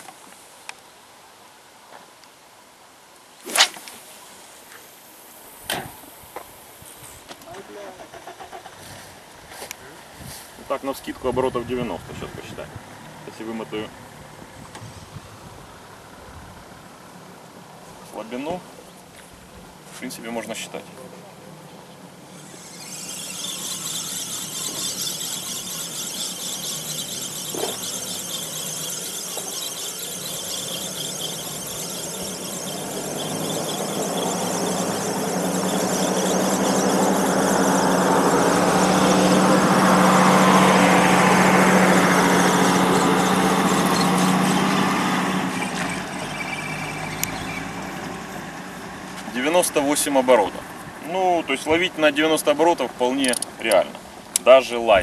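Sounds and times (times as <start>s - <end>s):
fishing reel gears whirring: 22.2s - 44.8s.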